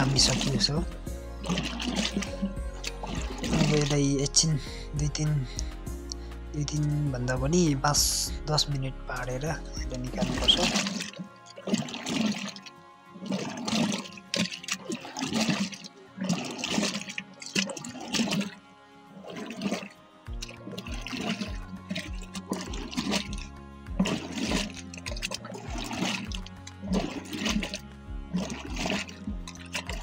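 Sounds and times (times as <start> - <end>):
buttermilk sloshing in churn: 0.0 - 5.6, 8.6 - 30.0
music with steady beat: 0.0 - 12.8, 20.3 - 30.0.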